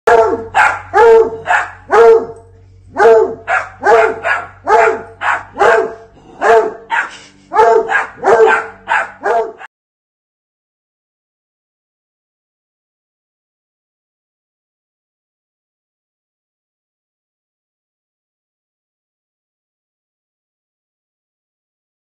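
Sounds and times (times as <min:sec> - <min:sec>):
dog barking: 0:00.1 - 0:09.7.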